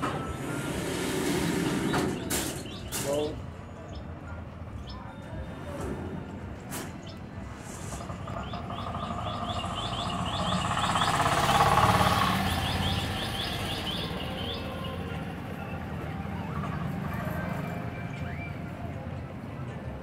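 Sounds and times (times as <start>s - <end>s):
passing vehicle: 0.0s - 3.5s, 5.7s - 20.0s
bird chirping rapidly: 1.6s - 4.1s, 8.0s - 15.0s.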